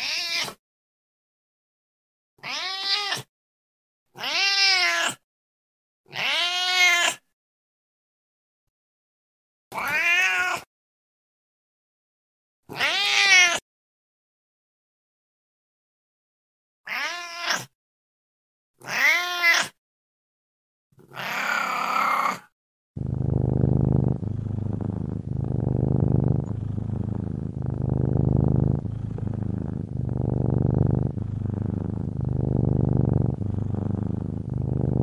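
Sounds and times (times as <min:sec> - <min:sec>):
cat meowing: 0:00.0 - 0:00.6, 0:02.4 - 0:03.3, 0:04.2 - 0:05.2, 0:06.1 - 0:07.2, 0:09.8 - 0:10.7, 0:12.7 - 0:13.6, 0:16.9 - 0:17.7, 0:18.8 - 0:19.7, 0:21.0 - 0:22.5
cat purring: 0:23.0 - 0:35.0.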